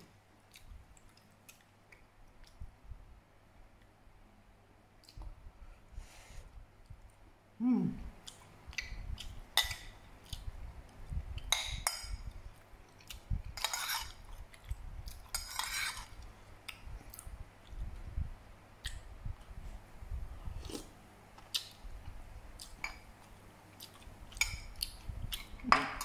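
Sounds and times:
metal spoon scraping a plate: 13.6s - 14.2s, 15.3s - 16.1s.

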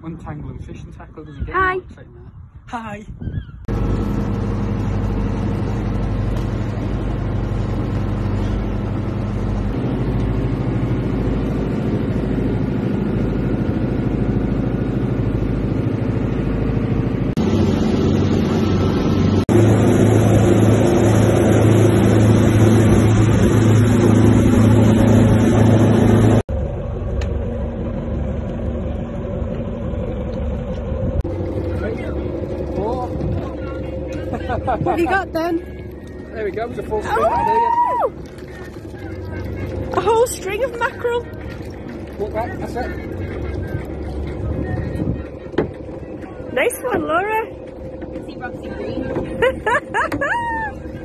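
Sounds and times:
rushing wind: 0.0s - 34.9s, 43.6s - 46.6s
motorboat engine running: 3.6s - 51.0s
water noise: 3.7s - 51.0s.

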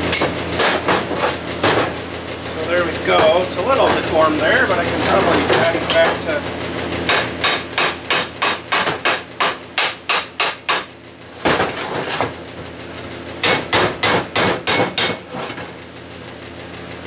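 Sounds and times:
hammer striking steel plate: 7.1s - 10.9s, 13.4s - 15.3s.

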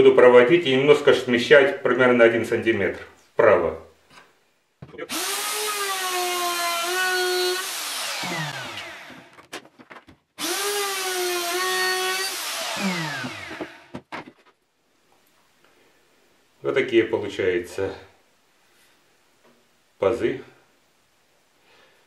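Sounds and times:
router spinning with high whine: 5.1s - 9.3s, 10.4s - 13.9s.

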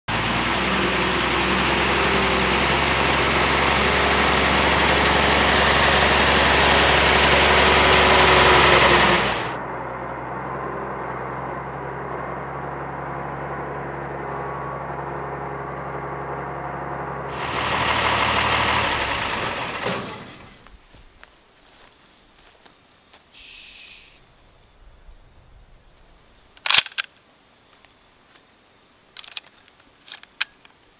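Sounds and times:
truck engine running: 0.1s - 22.6s.

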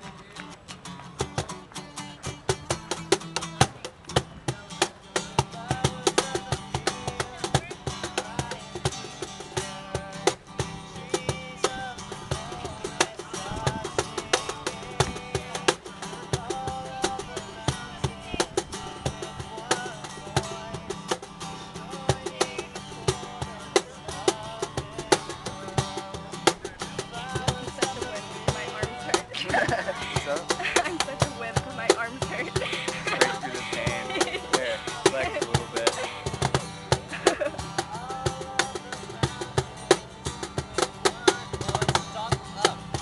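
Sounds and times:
acoustic guitar strumming: 0.0s - 43.0s
cajon slapped by hand: 2.4s - 4.3s.

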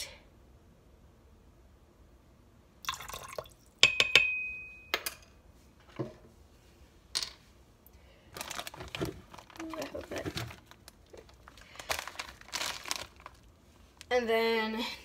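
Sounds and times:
liquid trickling: 2.8s - 3.8s
spoon tapping metal pot: 3.8s - 5.3s.

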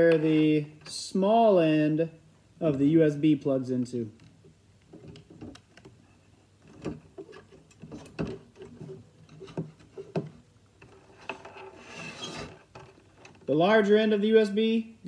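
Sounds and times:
cable rustling: 4.1s - 13.6s
light plastic clicks and knocks: 4.2s - 6.0s.

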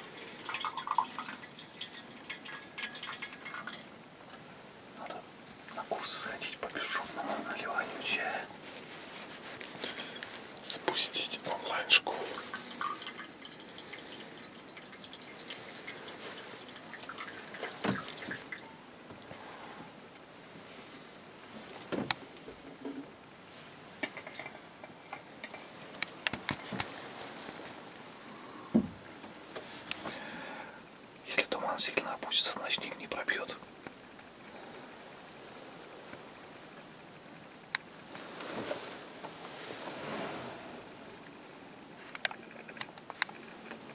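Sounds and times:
crickets chirping: 0.0s - 43.9s
tea trickling into cup: 0.1s - 3.9s, 10.7s - 18.6s.

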